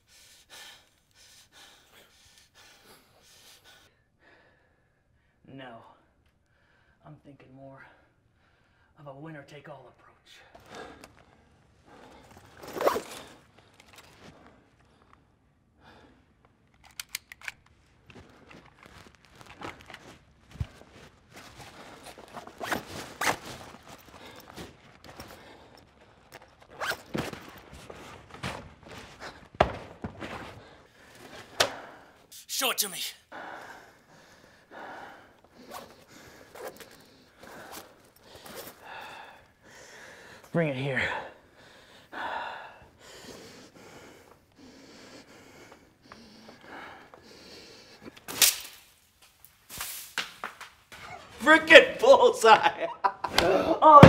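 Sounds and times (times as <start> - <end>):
faint breathing: 0.0 - 7.0, 33.2 - 48.3
clothing rustling: 17.6 - 31.6, 35.4 - 38.9.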